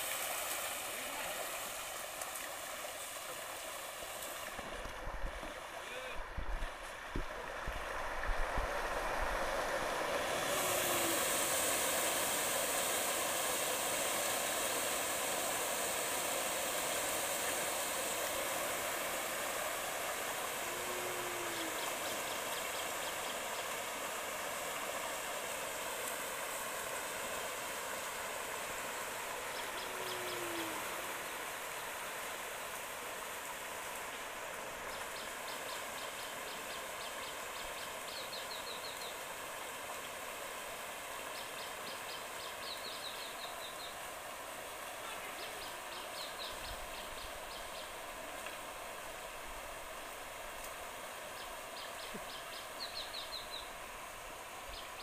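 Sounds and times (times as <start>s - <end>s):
short low hoot: 29.9s - 31.0s.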